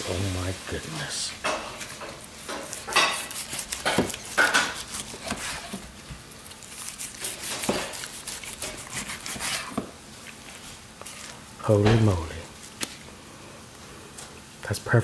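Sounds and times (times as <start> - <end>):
knife sawing through roast: 1.9 - 5.9, 6.6 - 9.8.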